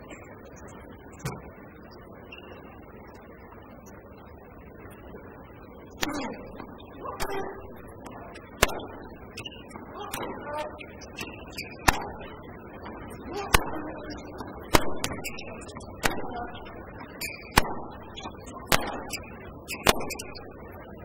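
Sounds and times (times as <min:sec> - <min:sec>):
low background voices: 0:00.0 - 0:21.0
tennis ball struck by rackets: 0:11.2 - 0:12.3, 0:18.7 - 0:19.2.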